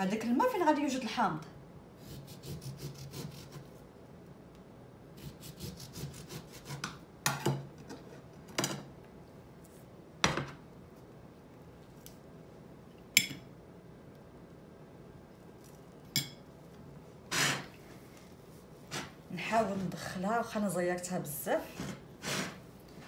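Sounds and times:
knife sawing through lemon: 0:02.0 - 0:03.6, 0:05.2 - 0:06.9.

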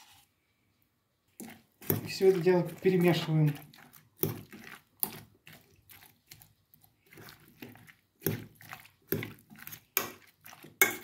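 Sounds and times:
salad stirred in steel pot: 0:01.1 - 0:11.0.

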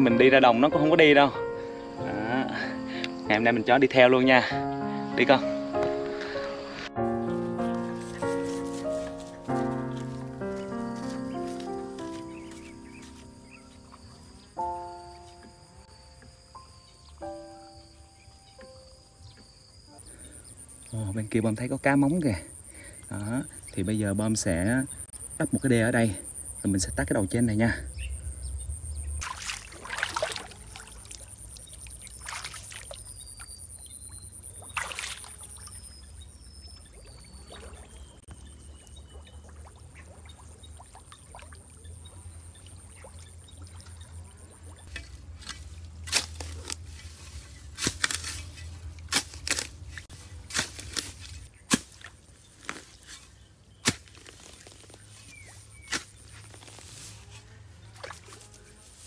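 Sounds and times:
insect trill: 0:00.0 - 0:39.8
bird chirps: 0:07.6 - 0:21.2, 0:21.8 - 0:29.2, 0:30.6 - 0:40.9, 0:55.0 - 0:56.4
mud splashing into water: 0:29.2 - 0:53.2, 0:53.8 - 0:57.1, 0:57.9 - 0:58.4.

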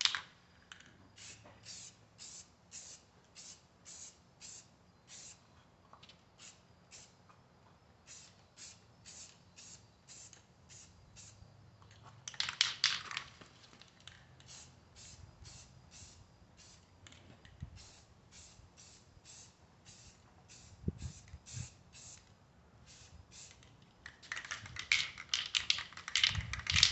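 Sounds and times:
aerosol can spraying: 0:01.2 - 0:05.4, 0:08.1 - 0:11.4, 0:17.8 - 0:22.2.

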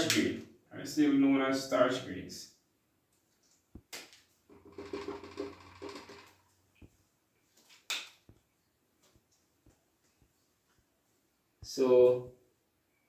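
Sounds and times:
markers clicking and tapping: 0:03.8 - 0:06.9
marker squeaking on whiteboard: 0:04.5 - 0:06.5.

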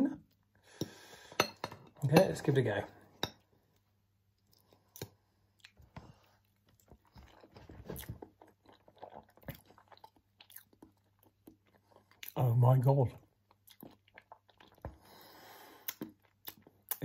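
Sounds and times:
faint chewing: 0:03.7 - 0:12.4, 0:13.4 - 0:17.0.

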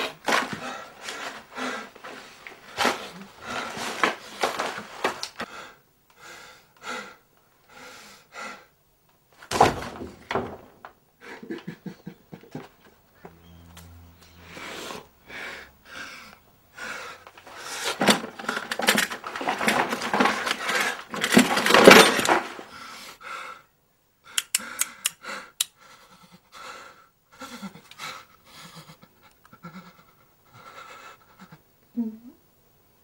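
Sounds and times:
person panting heavily: 0:00.3 - 0:04.2, 0:05.4 - 0:08.8, 0:14.4 - 0:18.9, 0:22.6 - 0:31.6
sharp clicks: 0:24.4 - 0:25.8.

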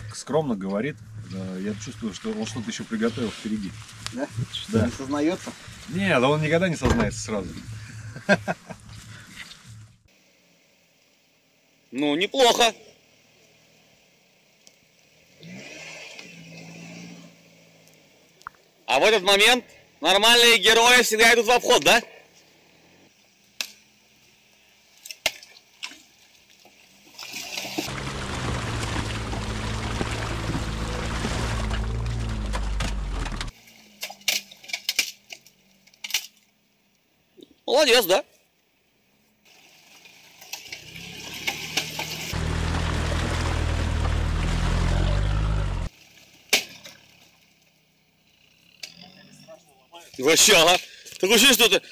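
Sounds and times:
water rushing: 0:27.3 - 0:33.4, 0:40.8 - 0:45.9
low engine hum: 0:27.9 - 0:33.5, 0:42.0 - 0:45.9.

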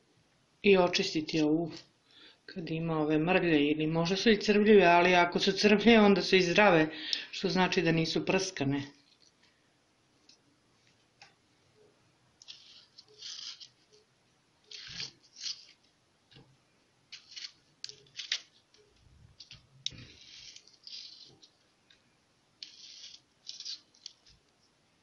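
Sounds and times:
knife cutting soft fruit: 0:12.4 - 0:13.9, 0:14.7 - 0:15.8, 0:19.5 - 0:21.6, 0:22.6 - 0:24.4.

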